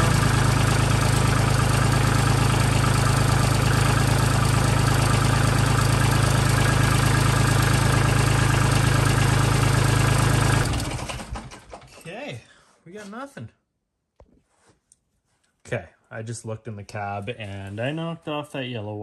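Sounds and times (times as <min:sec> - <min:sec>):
tractor diesel engine idling: 0:00.0 - 0:11.9.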